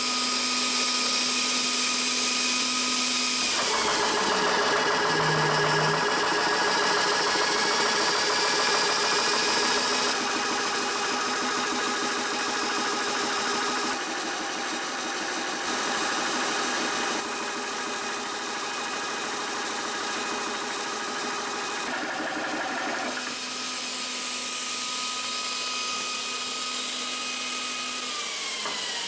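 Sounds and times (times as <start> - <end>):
air compressor humming: 3.4 - 18.0.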